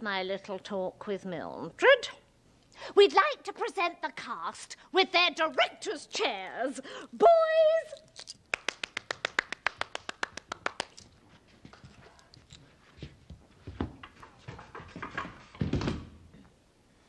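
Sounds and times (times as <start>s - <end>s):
woman clapping quickly: 8.5s - 11.0s.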